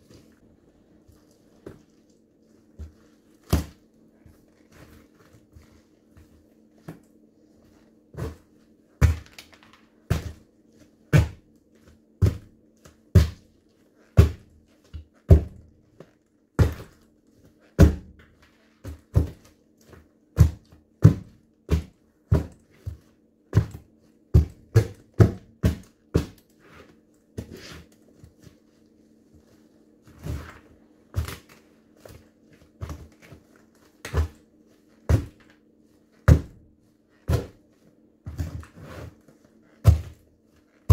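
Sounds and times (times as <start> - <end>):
boots stamping on pumpkin: 2.7 - 5.7, 8.1 - 9.4, 10.1 - 10.5, 11.1 - 11.5, 12.2 - 13.4, 14.2 - 15.7, 16.6 - 17.0, 17.8 - 18.2, 18.8 - 19.6, 20.3 - 26.4, 35.1 - 35.5, 36.2 - 36.6, 37.2 - 37.6, 39.8 - 40.2.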